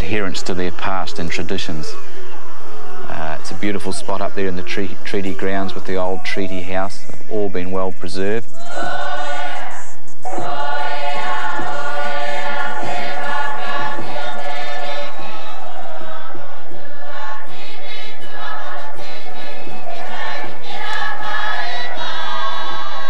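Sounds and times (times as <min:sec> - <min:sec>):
choir singing: 0:08.6 - 0:23.0.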